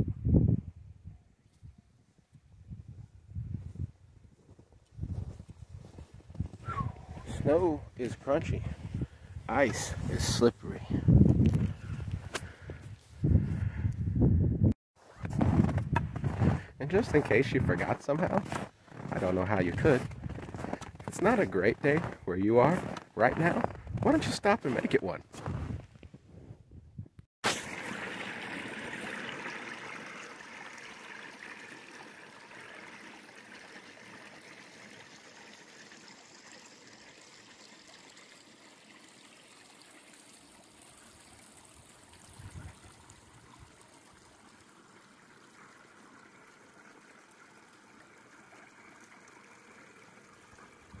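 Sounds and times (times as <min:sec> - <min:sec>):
creek water rushing: 0:27.4 - 0:51.0.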